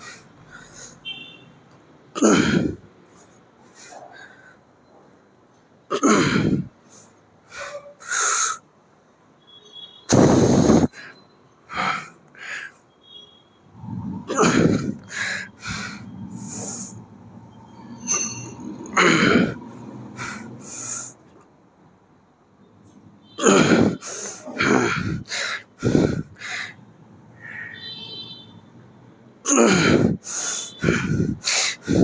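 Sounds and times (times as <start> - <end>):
man breathing hard with grunts: 6.2 - 8.6, 13.8 - 17.1, 18.9 - 21.2, 23.4 - 26.8, 29.5 - 32.0.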